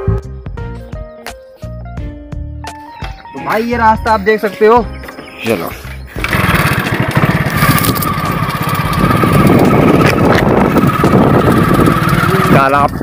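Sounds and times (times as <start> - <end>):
motorcycle engine running: 6.1 - 13.0.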